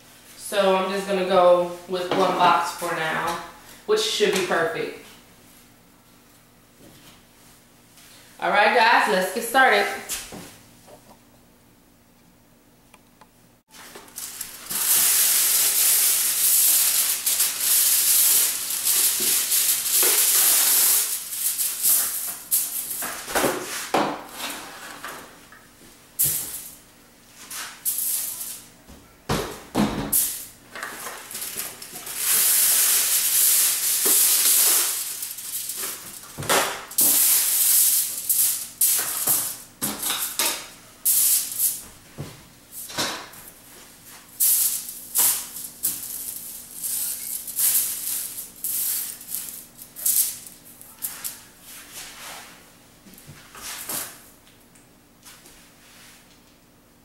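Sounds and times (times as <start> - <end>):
aluminium foil crackling: 13.7 - 23.3, 27.6 - 28.7, 30.1 - 41.8, 44.2 - 51.5.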